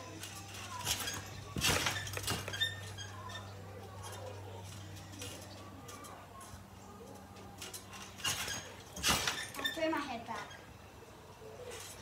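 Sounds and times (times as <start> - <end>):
trampoline landing thumps: 0.8 - 3.4, 7.9 - 9.7.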